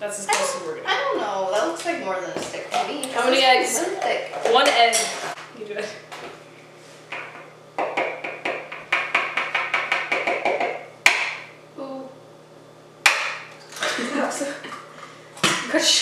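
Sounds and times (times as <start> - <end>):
hard knock: 7.1 - 11.4
egg tapping on glass bowl: 7.2 - 11.4.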